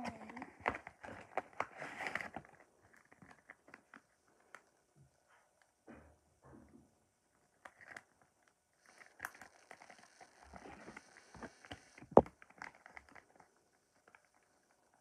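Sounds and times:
toys rustling and clicking: 0:07.4 - 0:15.0.

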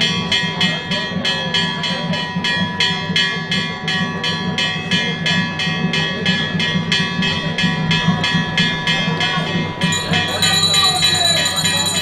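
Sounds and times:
bell struck rapidly: 0:00.0 - 0:12.0
murmur of crowd: 0:00.0 - 0:12.0.

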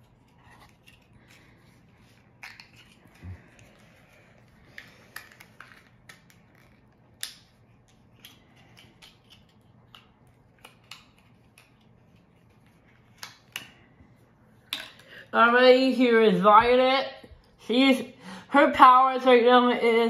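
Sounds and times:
plastic package clicks and crinkles: 0:02.2 - 0:11.9.

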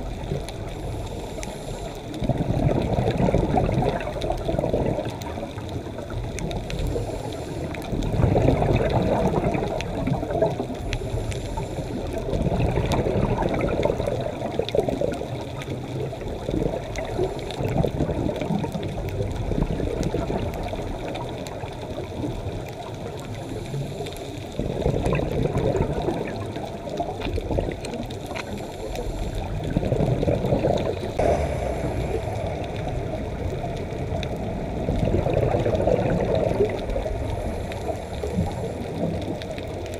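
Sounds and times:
exhaust bubbles: 0:00.0 - 0:23.4, 0:24.5 - 0:39.9
faint ticking crackle: 0:00.0 - 0:39.9
regulator inhale hiss: 0:00.6 - 0:02.3, 0:06.7 - 0:08.0, 0:10.7 - 0:12.3, 0:23.3 - 0:24.6, 0:28.3 - 0:29.8, 0:31.1 - 0:33.5, 0:37.0 - 0:39.2.

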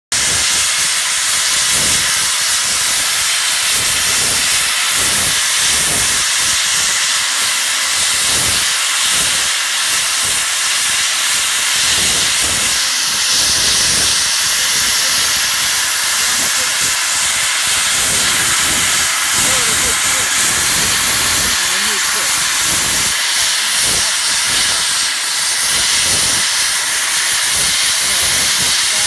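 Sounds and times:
steam hissing: 0:00.1 - 0:29.0.

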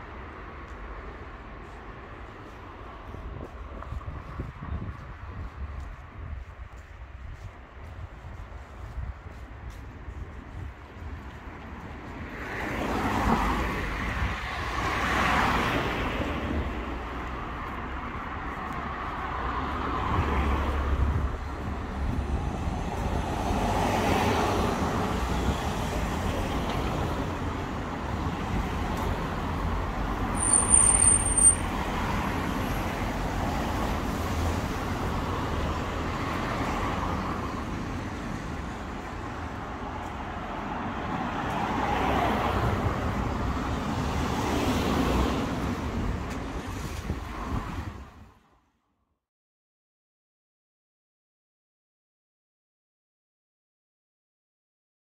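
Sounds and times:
cars passing: 0:00.0 - 0:48.5
high-pitched squeal: 0:30.4 - 0:31.8.

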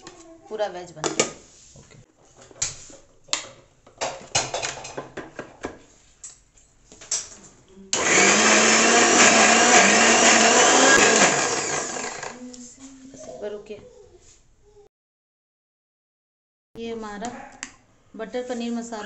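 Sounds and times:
mixer grinder whirring: 0:07.9 - 0:12.4.

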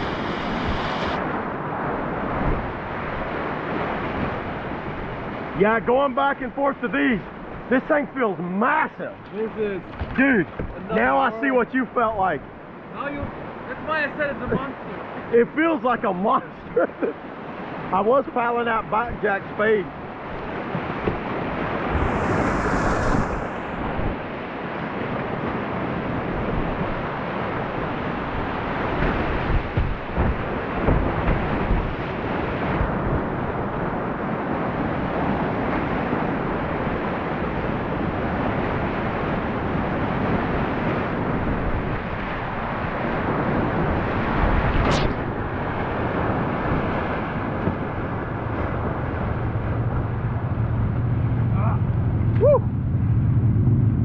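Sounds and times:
rushing whitewater: 0:00.0 - 0:52.4
wind buffeting microphone: 0:20.1 - 0:54.0.

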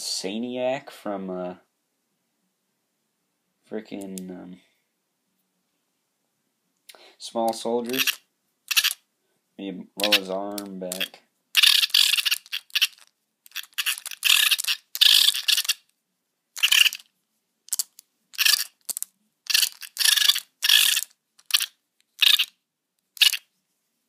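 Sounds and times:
toy mechanism harsh bursts: 0:07.9 - 0:09.0, 0:10.0 - 0:15.9, 0:16.6 - 0:17.1, 0:17.7 - 0:23.5.

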